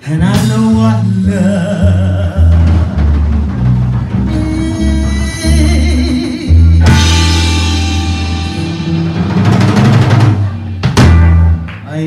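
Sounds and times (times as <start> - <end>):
live rock band playing: 0.0 - 12.0
rapid drum roll: 2.5 - 5.0, 5.6 - 11.8.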